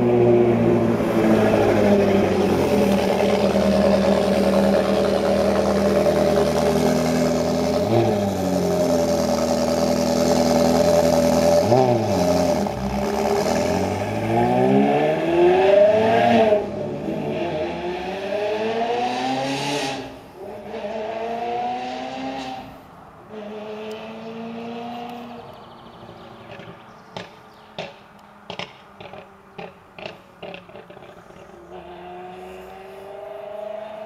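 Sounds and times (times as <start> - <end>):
car engine accelerating: 0.0 - 22.7.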